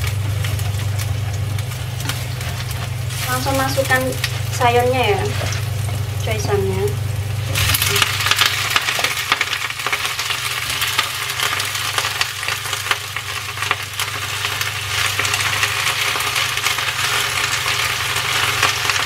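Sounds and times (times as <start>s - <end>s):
greens sizzling in hot oil: 0.0s - 19.0s
steady low hum: 0.0s - 19.0s
chopsticks stirring in pan: 0.4s - 6.9s.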